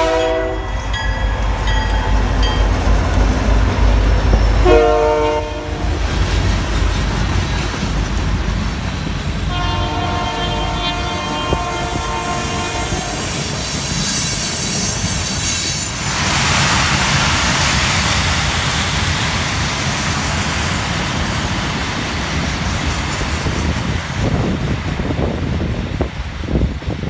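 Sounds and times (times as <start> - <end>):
freight cars rumbling and clattering: 5.8 - 9.5
high squeal: 13.6 - 16.1.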